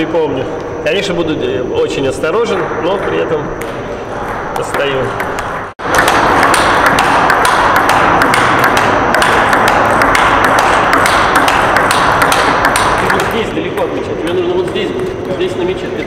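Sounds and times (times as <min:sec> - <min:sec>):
dense background noise: 0:00.0 - 0:16.0
table tennis ball clicking: 0:03.0 - 0:15.8.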